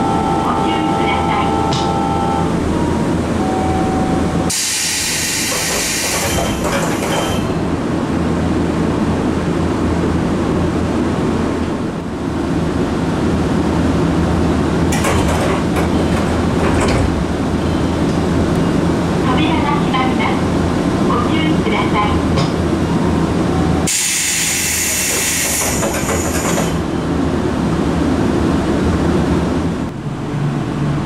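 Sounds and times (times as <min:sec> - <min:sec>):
train car steady hum: 0:00.0 - 0:31.0
train doors hissing air: 0:04.4 - 0:07.5, 0:23.8 - 0:26.8
doors knocking: 0:15.0 - 0:17.2.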